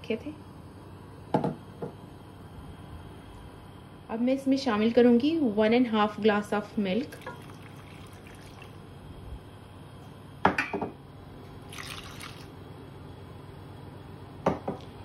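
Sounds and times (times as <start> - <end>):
milk pouring into a pot: 7.1 - 8.8, 11.7 - 12.6.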